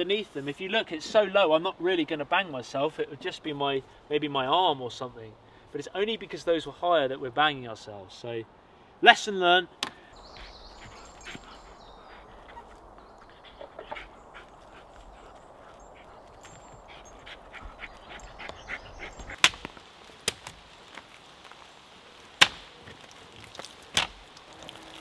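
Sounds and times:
dogs playing on dry leaves: 0:10.4 - 0:25.0.

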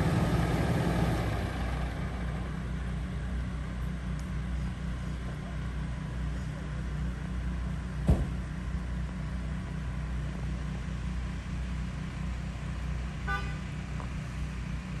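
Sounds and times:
truck engines idling: 0:00.0 - 0:15.0
sharp thump: 0:08.0 - 0:08.5
short horn toot: 0:13.2 - 0:13.7.

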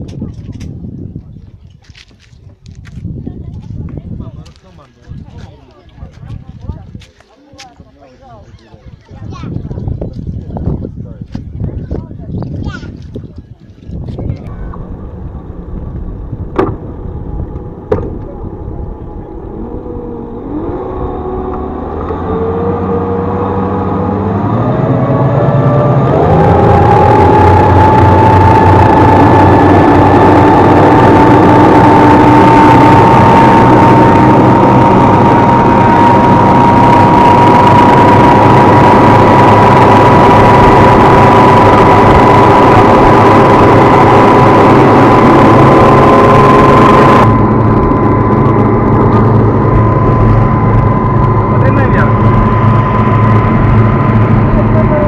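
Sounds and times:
motorboat engine running: 0:11.7 - 0:55.0
dense rushing noise: 0:13.6 - 0:55.0
thin steady whine: 0:13.6 - 0:55.0
sharp knocks: 0:16.5 - 0:16.8, 0:17.9 - 0:18.3.

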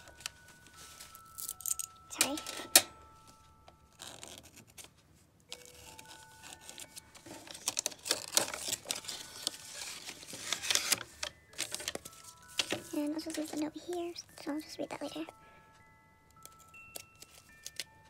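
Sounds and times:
paper rustling: 0:04.0 - 0:13.7
knife slitting paper envelope: 0:05.5 - 0:12.1.

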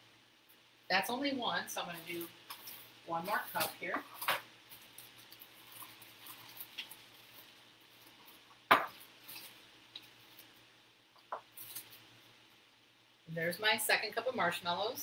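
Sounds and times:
plastic bag rustling: 0:01.8 - 0:12.3.

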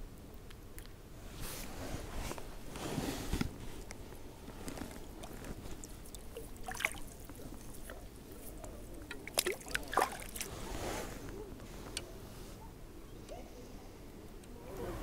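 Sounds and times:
water splashing and dripping: 0:05.8 - 0:08.0, 0:08.6 - 0:10.5.

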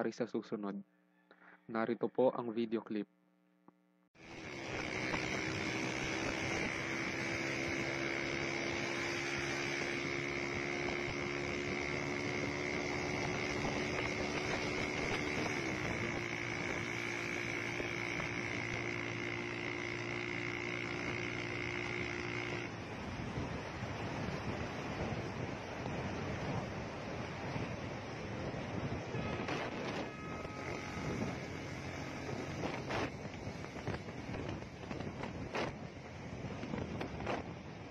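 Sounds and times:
steady high whine: 0:03.4 - 0:37.9
wind noise on microphone: 0:04.2 - 0:19.6, 0:20.4 - 0:37.9
motorcycle engine cruising: 0:04.2 - 0:37.9.

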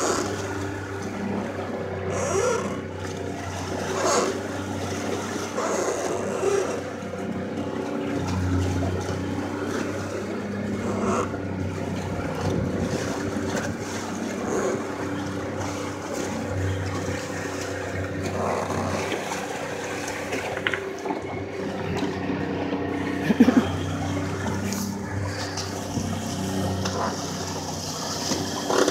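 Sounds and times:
boat engine drone: 0:00.0 - 0:28.9
water rushing along hull: 0:00.0 - 0:28.9
wind buffeting microphone: 0:11.4 - 0:18.3, 0:18.9 - 0:28.7.

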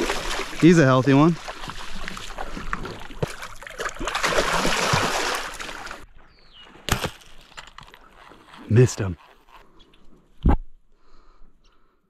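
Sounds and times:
water splashing and sloshing: 0:00.0 - 0:09.6.

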